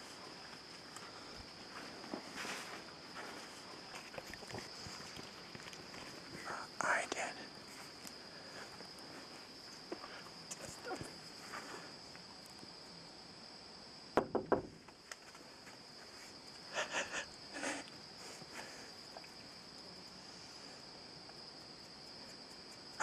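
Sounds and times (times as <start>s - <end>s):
quiet shuffles: 0.0s - 6.4s, 7.6s - 12.0s
night insects chirring: 0.0s - 23.0s.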